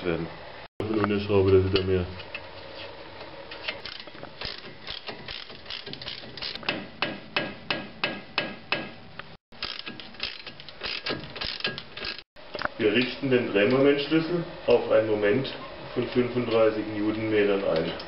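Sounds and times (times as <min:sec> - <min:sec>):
socket ratchet clicking: 0:03.8 - 0:06.6, 0:09.6 - 0:12.2.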